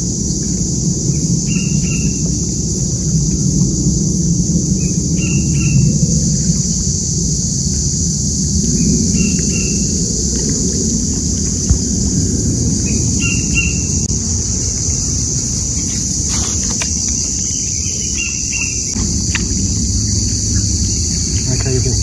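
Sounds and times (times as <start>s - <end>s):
low background rumble: 0.0s - 22.0s
high hiss: 6.2s - 22.0s
bird chirping: 12.8s - 22.0s.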